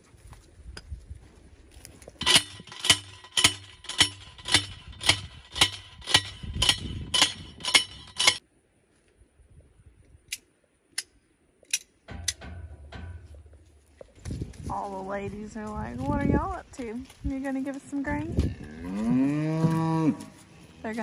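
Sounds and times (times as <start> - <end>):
hammer striking steel post: 2.2 - 8.4, 12.1 - 13.4.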